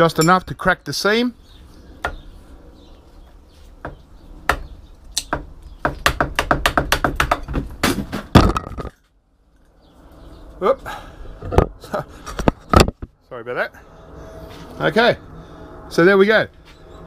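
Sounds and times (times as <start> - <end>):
metal knocks on transformer core: 5.2 - 9.0, 12.4 - 13.1.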